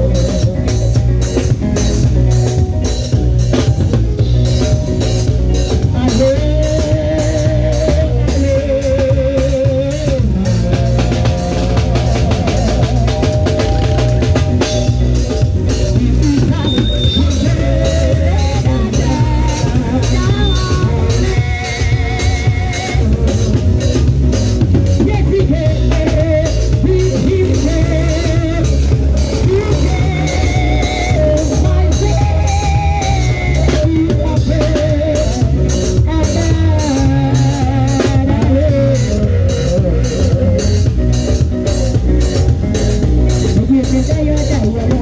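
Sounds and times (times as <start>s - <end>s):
drum kit beat: 0.0s - 45.0s
electronic keyboard: 0.0s - 45.0s
person singing: 5.5s - 45.0s.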